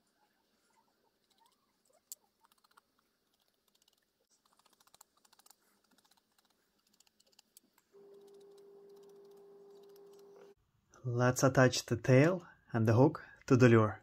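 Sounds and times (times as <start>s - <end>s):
faint steady hum: 7.5s - 11.1s.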